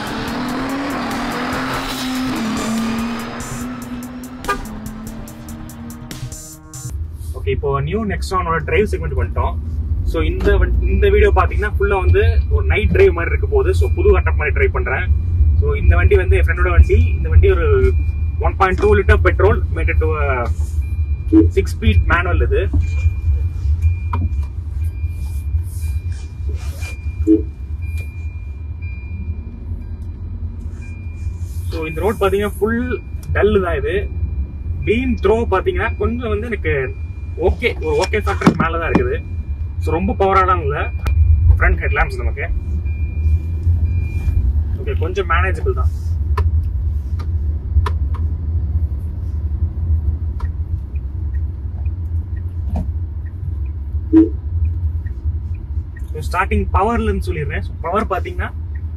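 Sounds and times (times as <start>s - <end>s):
car cabin engine rumble: 0.0s - 58.9s
tyres on road: 0.0s - 58.9s
brief low blip: 54.1s - 54.4s.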